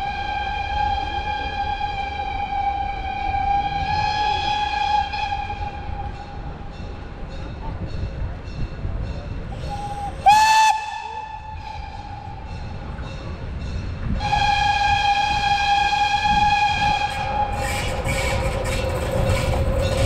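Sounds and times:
locomotive whistle blasts: 0.0 - 6.2, 9.6 - 12.5, 14.2 - 18.8.

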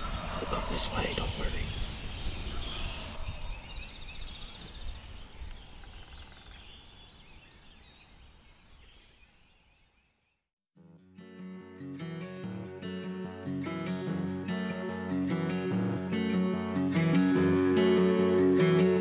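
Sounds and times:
songbirds singing and calling: 0.0 - 10.4.

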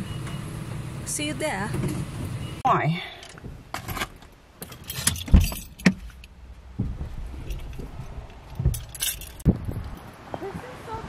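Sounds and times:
thumps and rattles: 3.3 - 10.0
car road rumble from inside: 5.1 - 11.0.

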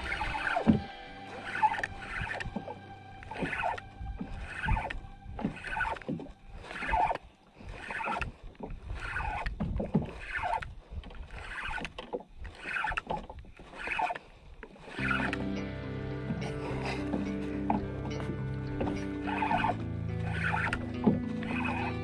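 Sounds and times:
music: 0.0 - 7.8, 15.0 - 22.0
fishing reel cranking: 0.0 - 15.6, 16.3 - 22.0.

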